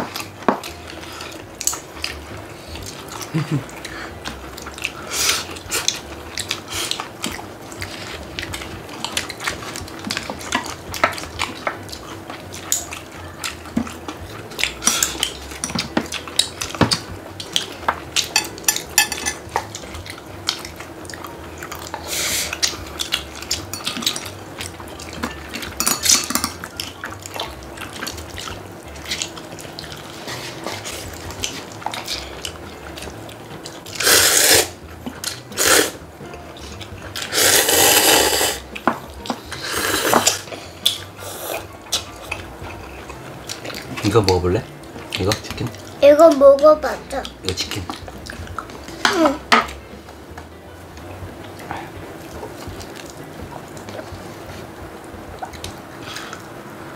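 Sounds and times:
noodles being slurped: 27.1s - 32.5s, 33.8s - 36.0s, 37.1s - 38.7s, 39.4s - 42.4s.

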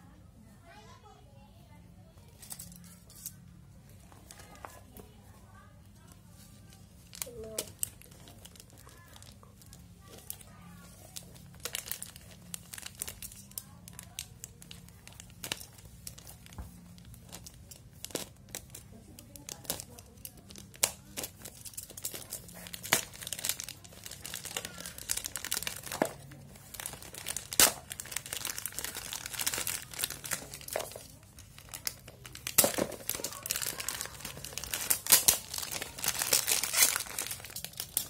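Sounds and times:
plastic bag crinkling and tearing: 6.0s - 38.0s.

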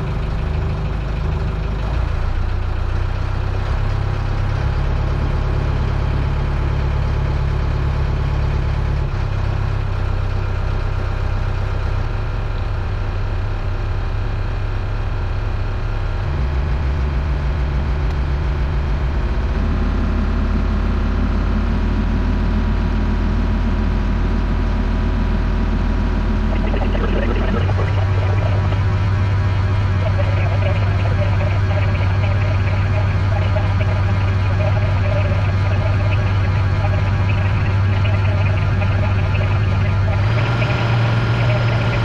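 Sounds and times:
boat engine running under load: 24.2s - 42.0s.

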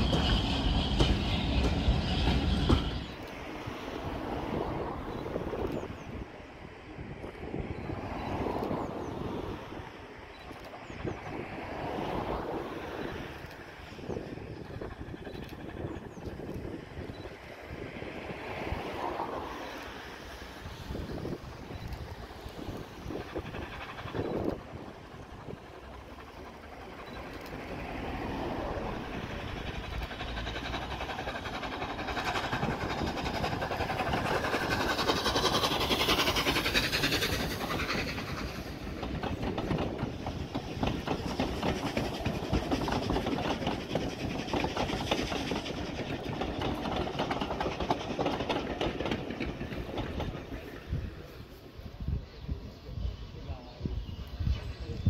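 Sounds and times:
wheels clattering over rail joints: 0.0s - 3.8s, 20.9s - 51.3s
steam locomotive passing: 0.0s - 55.0s.

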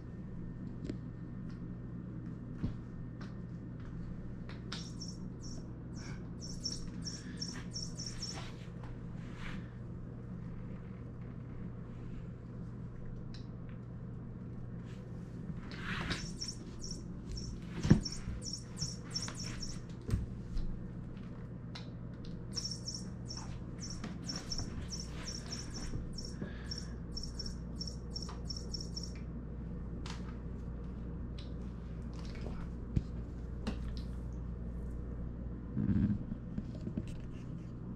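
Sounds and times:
steady low hum: 0.0s - 37.9s
electronic bird toy chirping: 4.8s - 8.5s, 16.1s - 19.8s, 22.5s - 29.2s
knocks and scuffs on vinyl floor: 15.8s - 20.3s.

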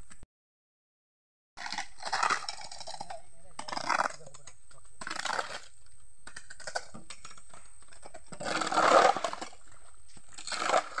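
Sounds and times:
shovels scraping wet dirt and gravel: 5.0s - 5.7s, 8.0s - 11.0s.

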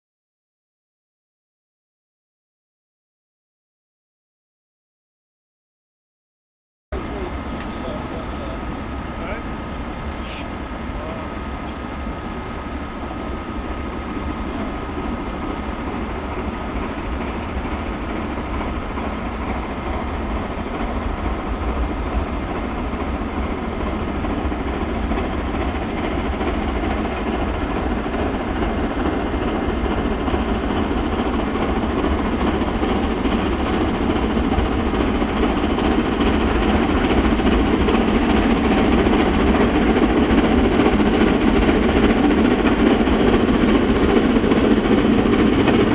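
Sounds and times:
steam locomotive exhaust: 7.0s - 45.9s.

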